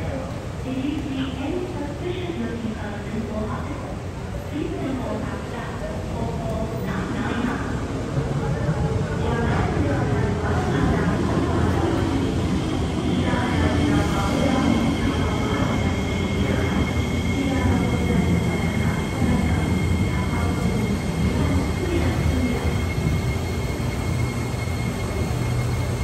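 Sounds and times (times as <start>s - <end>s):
electric train humming: 8.0s - 26.0s.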